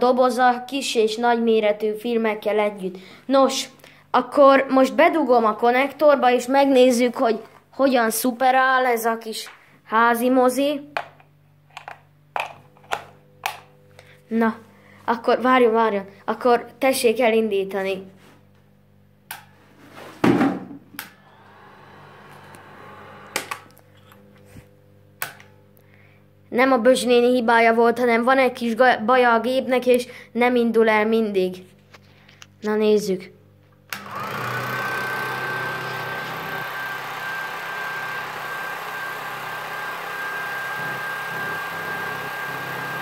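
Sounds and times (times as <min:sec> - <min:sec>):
film mechanism whirring: 0:21.0 - 0:24.3, 0:33.9 - 0:43.0
projector faint whir: 0:21.0 - 0:24.8
film projector motor whining: 0:21.1 - 0:24.3, 0:33.9 - 0:43.0
projector switch clicks: 0:25.2 - 0:25.6.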